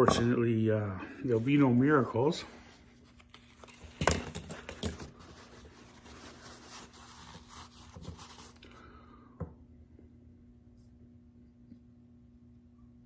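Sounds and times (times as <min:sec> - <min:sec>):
cloth rubbing against face: 0:05.1 - 0:08.7.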